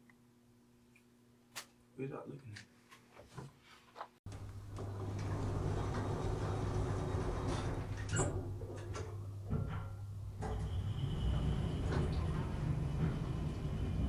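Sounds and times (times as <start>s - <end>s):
elevator hum and rumble: 4.3s - 14.0s.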